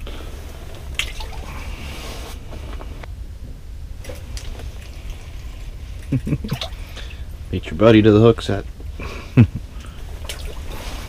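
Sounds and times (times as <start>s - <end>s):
low rumble: 0.0s - 11.0s
water splashing and dripping: 0.9s - 1.6s, 4.0s - 7.3s, 9.8s - 11.0s.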